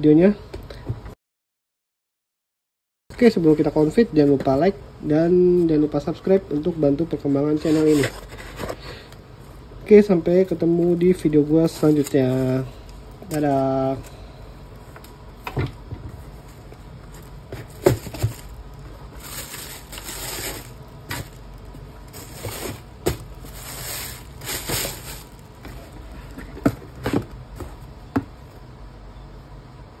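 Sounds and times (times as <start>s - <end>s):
tissue paper rustling: 11.6s - 12.7s, 16.4s - 26.4s
cardboard box handled: 16.0s - 18.6s, 22.1s - 28.3s.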